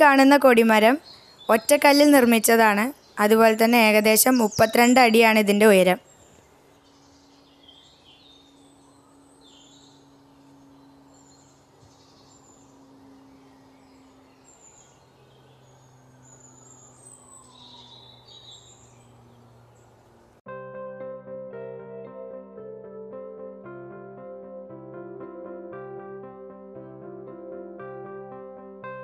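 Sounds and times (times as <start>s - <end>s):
bird chirps: 0.0s - 20.1s
music: 20.5s - 29.0s.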